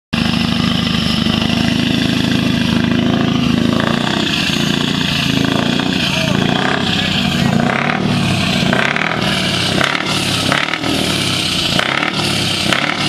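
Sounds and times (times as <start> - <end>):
truck engine running: 0.1 - 13.0.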